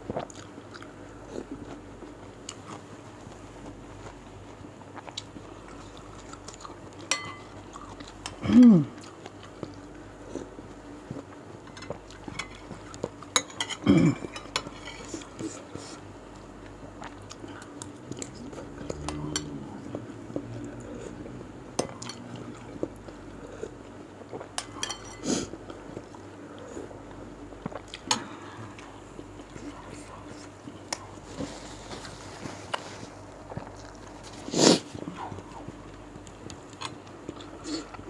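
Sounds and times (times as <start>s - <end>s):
chewing: 0.1s - 1.8s, 2.4s - 16.0s, 27.6s - 38.0s
spoon clinking on ceramic bowl: 7.1s - 7.5s.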